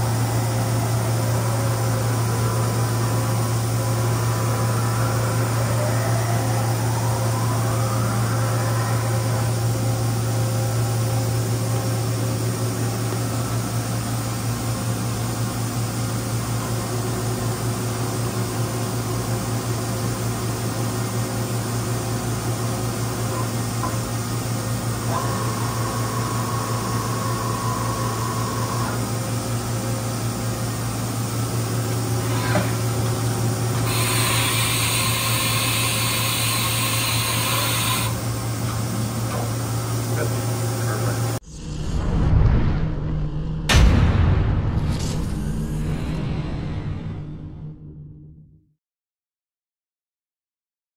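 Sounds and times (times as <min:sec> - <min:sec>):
steady high tone: 0:00.0 - 0:16.2, 0:23.4 - 0:38.6
machinery hum: 0:00.0 - 0:48.6
loud hiss: 0:33.8 - 0:38.3.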